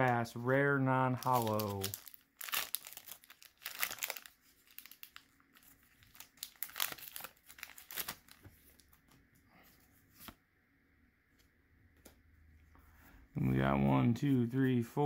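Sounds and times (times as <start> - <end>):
foil wrapper crinkling and tearing: 1.1 - 8.8.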